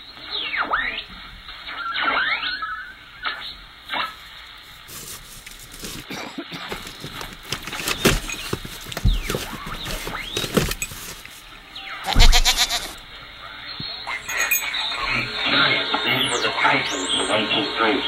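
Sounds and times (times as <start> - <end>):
cardboard rustling and scraping: 4.6 - 13.1
short squeaky scrapes: 12.1 - 13.0.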